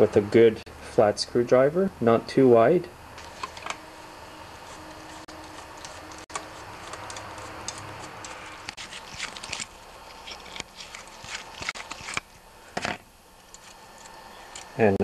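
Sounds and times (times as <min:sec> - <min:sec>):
screwdriver clicking and scraping metal: 0:04.7 - 0:12.2, 0:13.5 - 0:14.8.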